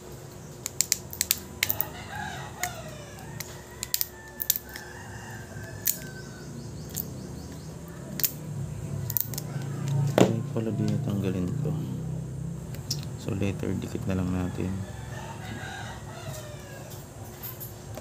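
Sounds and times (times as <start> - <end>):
rooster crowing: 1.6 - 7.5, 9.1 - 11.9, 13.4 - 17.7.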